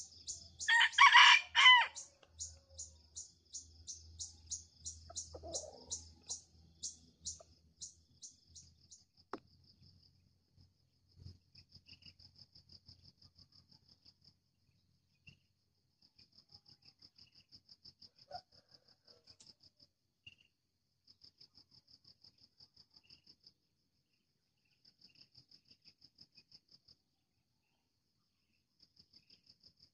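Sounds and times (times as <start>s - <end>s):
insects chirping: 0.0s - 18.4s.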